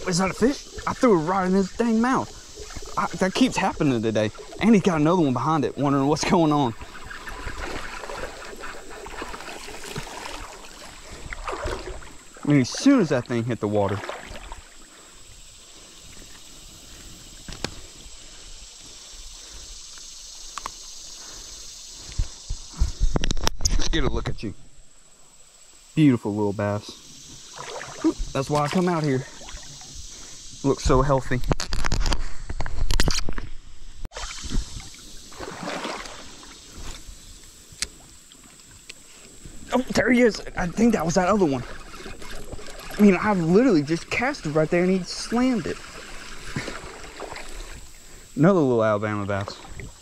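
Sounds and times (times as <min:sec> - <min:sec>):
water splashing and sloshing: 0:00.0 - 0:23.0, 0:26.9 - 0:50.0
creek water washing: 0:00.0 - 0:23.2, 0:24.3 - 0:33.4, 0:34.1 - 0:50.0
faint outdoor hiss: 0:00.0 - 0:50.0.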